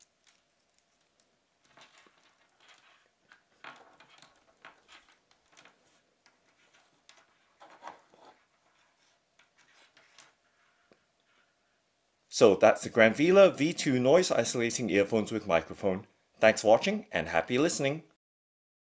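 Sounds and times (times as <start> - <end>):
cable rustling: 0.0 - 11.8.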